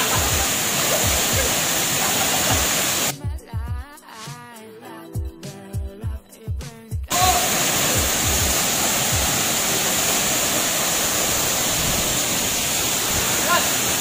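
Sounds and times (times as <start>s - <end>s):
waterfall rushing into pool: 0.0s - 3.1s, 7.1s - 14.0s
background music with steady beat: 2.5s - 7.3s, 8.0s - 9.4s.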